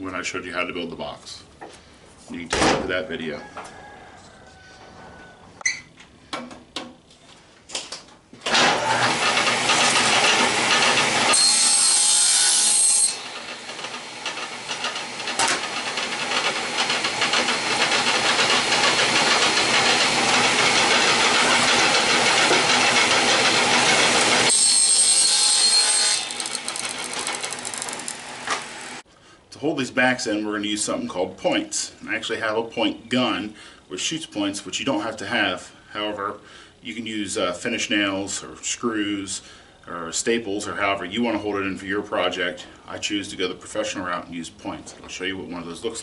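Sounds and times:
table saw cutting plywood: 8.5 - 29.0.

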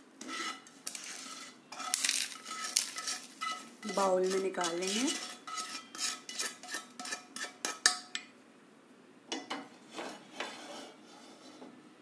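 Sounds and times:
spoon scraping a pan: 0.2 - 8.3, 9.5 - 11.8.

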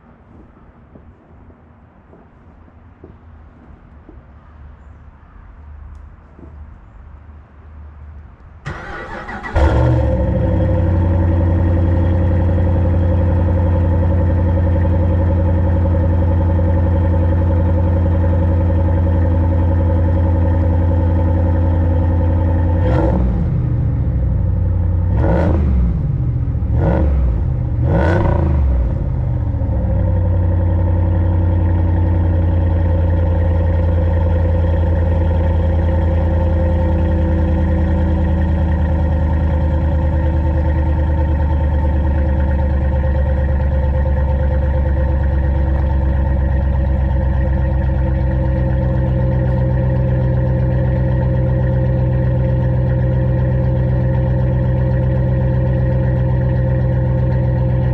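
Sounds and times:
engine idling: 8.6 - 57.9
engine revving: 8.7 - 17.4, 22.4 - 52.4.

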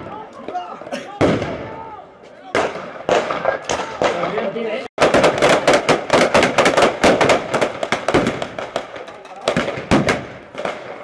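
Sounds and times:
rapid blank rifle fire: 5.0 - 11.0.

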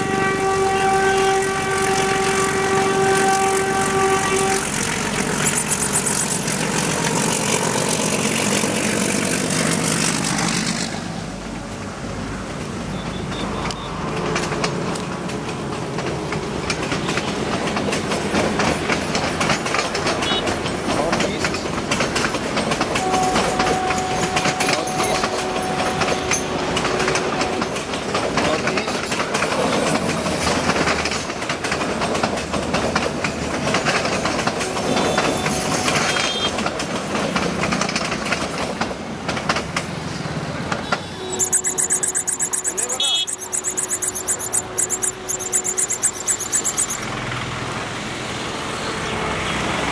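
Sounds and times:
train wheels clacking over rail joints: 0.0 - 48.7
diesel locomotive engine chugging: 0.0 - 49.9.

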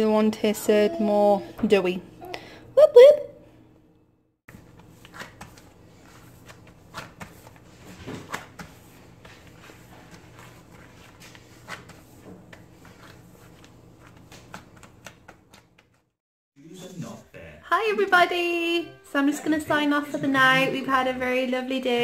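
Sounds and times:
hand patting dough: 4.5 - 16.1.

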